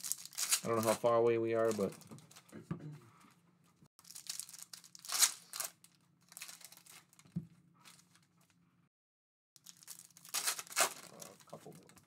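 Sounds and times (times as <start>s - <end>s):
foil wrappers crinkling and tearing: 0.0s - 2.5s, 4.0s - 7.2s, 9.6s - 12.0s.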